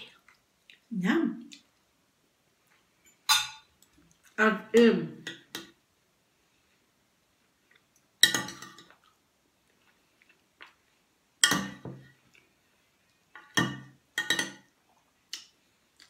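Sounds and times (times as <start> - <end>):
cutlery clinking on plate: 3.1 - 3.7, 8.2 - 8.9, 11.4 - 12.0, 13.4 - 14.7.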